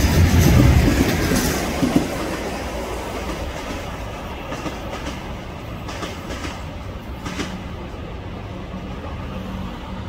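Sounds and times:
wheels clicking over rail joints: 0.0 - 7.7
train passing: 0.0 - 10.0.

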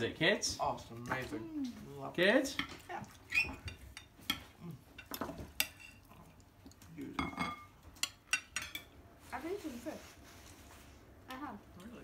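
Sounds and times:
cutlery clinking on plates: 7.2 - 8.9.

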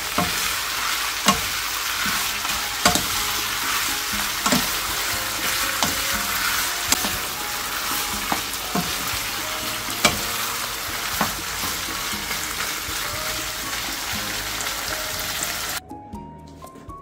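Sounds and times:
meat sizzling in a frying pan: 0.0 - 15.8
spatula knocking against pan: 0.1 - 0.5, 1.2 - 12.4.

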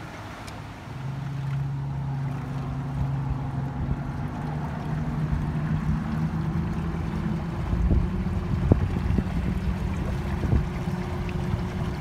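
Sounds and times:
electric boat motor hum: 0.0 - 12.0
water rushing along hulls: 0.0 - 12.0
wind: 0.0 - 12.0.

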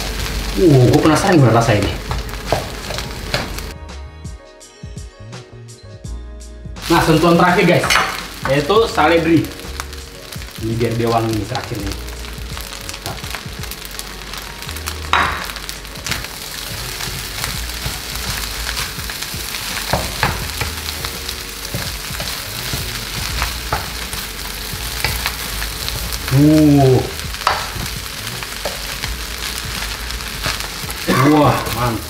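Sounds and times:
rice sizzling in a frying pan: 0.0 - 3.8, 6.8 - 32.0
man's voice: 6.8 - 9.6, 10.6 - 12.1, 31.0 - 32.0.

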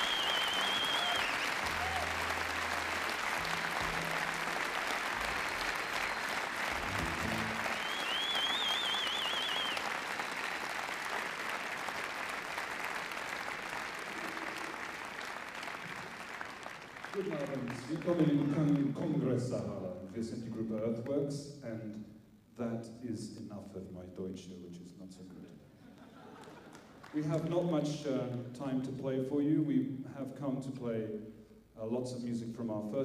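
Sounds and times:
shrill wavering whistle: 0.0 - 1.6, 7.5 - 9.8
audience applauding: 0.0 - 19.3, 26.0 - 27.6
low held notes: 6.6 - 8.2.

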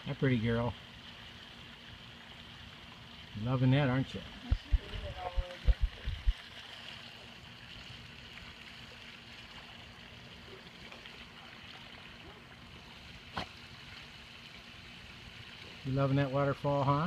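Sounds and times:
waterfall splashing into pool: 3.4 - 17.0.

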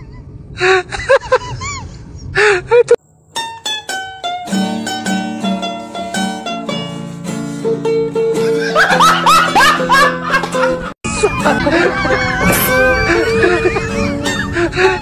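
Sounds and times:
plucked string music: 3.3 - 14.8
child wailing: 11.3 - 13.4.

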